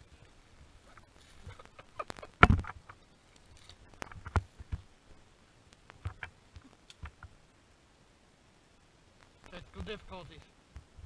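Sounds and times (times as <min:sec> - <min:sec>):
rustling in dry leaves: 0:00.0 - 0:06.9.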